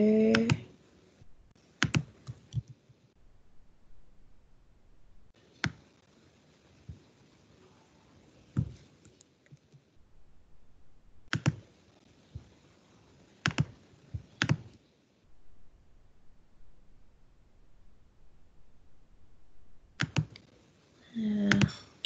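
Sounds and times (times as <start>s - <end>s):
computer mouse clicks: 1.8s - 2.8s, 5.6s - 5.8s, 11.3s - 11.6s, 13.4s - 14.8s, 20.0s - 20.5s
keyboard clicks: 1.8s - 2.8s, 11.3s - 11.6s, 13.4s - 14.8s, 20.0s - 20.5s, 21.5s - 21.8s.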